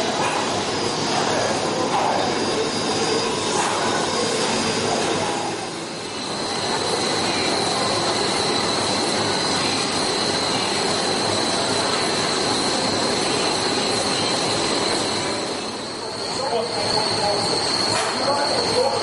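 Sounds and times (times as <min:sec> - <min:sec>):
high-pitched whine: 0:00.0 - 0:19.0
hiss: 0:00.0 - 0:19.0.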